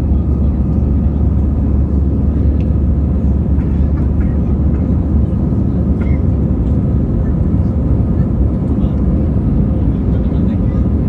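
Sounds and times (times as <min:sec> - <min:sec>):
jet engines deep rumble: 0:00.0 - 0:11.0.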